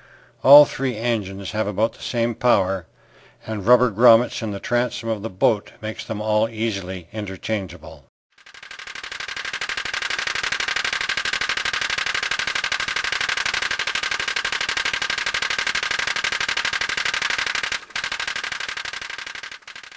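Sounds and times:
pop-pop boat engine popping: 8.4s - 19.9s.

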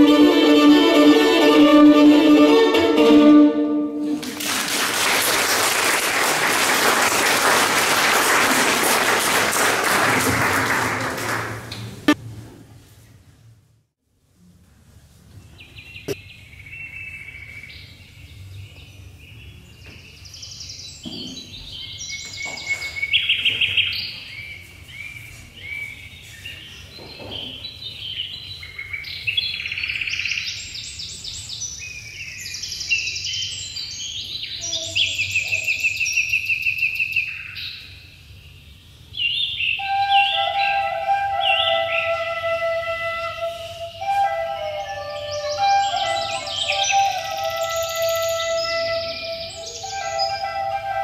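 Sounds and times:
bird chirps warbles and trills: 15.6s - 42.3s, 44.7s - 50.8s.

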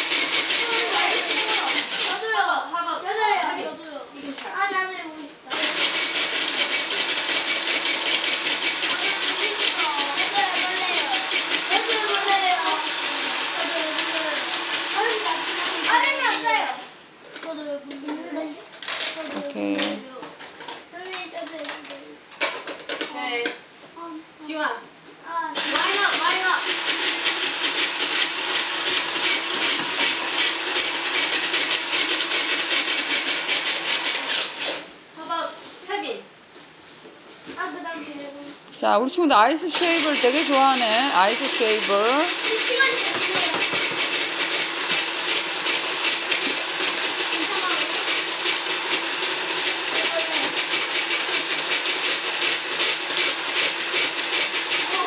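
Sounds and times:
ice shaver rasping: 0.0s - 2.4s, 5.5s - 16.6s, 25.6s - 34.9s, 39.5s - 55.0s.

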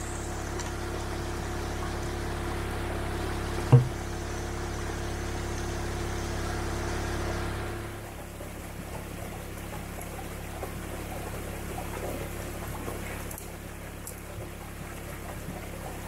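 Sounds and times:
motor humming: 0.0s - 8.3s
creek water running: 0.0s - 16.0s
sharp low thump: 3.7s - 4.1s.

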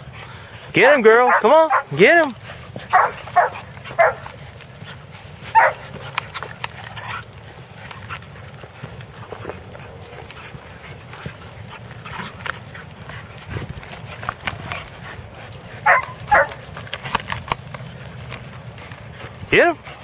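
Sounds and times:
dogs growling: 0.0s - 20.0s
paws scuffling on ground: 0.0s - 20.0s
dog barks: 1.1s - 2.1s, 2.9s - 4.4s, 5.5s - 5.9s, 15.8s - 16.6s.

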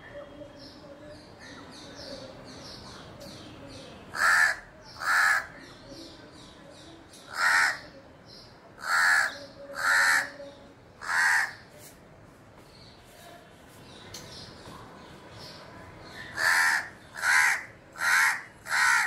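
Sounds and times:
crow cawing: 4.1s - 5.6s, 7.3s - 8.0s, 8.8s - 10.4s, 11.0s - 11.6s, 16.3s - 19.0s.

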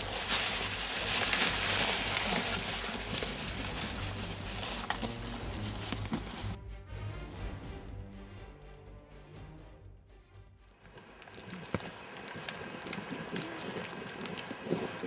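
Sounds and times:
footsteps through undergrowth: 0.0s - 6.6s
twigs snapping: 0.0s - 6.6s, 10.9s - 15.0s.

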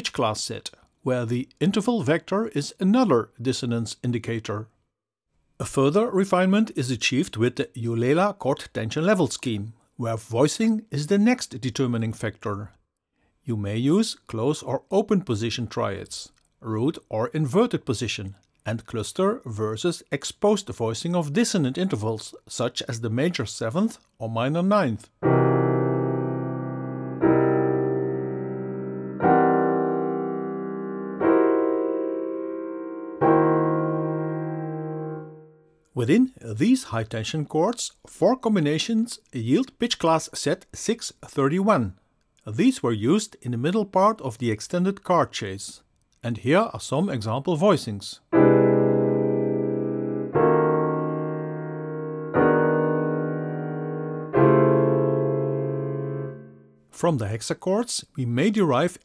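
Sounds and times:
piano dissonant chords: 25.2s - 35.6s, 48.4s - 56.7s.

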